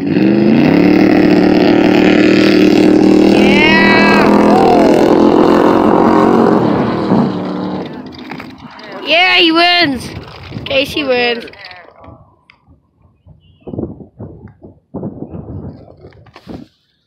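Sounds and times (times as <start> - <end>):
racing car engine revving: 0.0 - 9.2.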